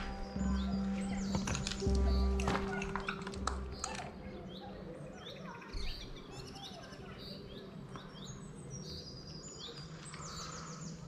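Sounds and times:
birds chirping: 0.0s - 11.0s.

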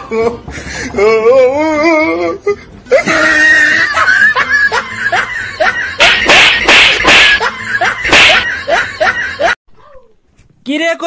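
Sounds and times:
man laughing: 2.9s - 9.6s
loud slaps: 6.0s - 8.5s.

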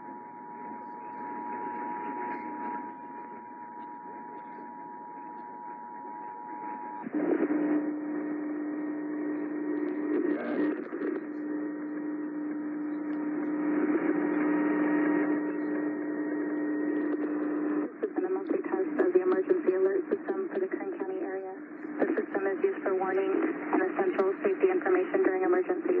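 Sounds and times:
low hum with radio static: 0.0s - 26.0s.

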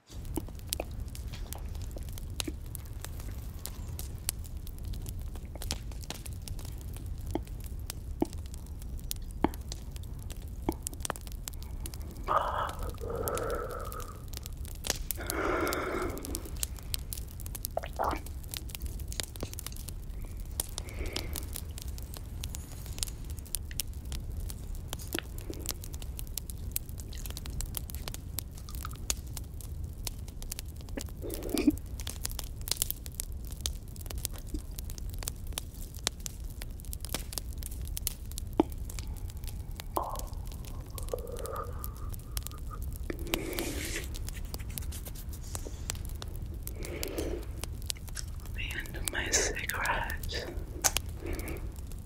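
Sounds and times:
campfire crackling and popping: 0.0s - 52.0s
person exhaling smoke: 11.5s - 18.3s, 19.4s - 23.4s, 31.0s - 31.8s, 38.6s - 47.8s, 48.8s - 52.0s.

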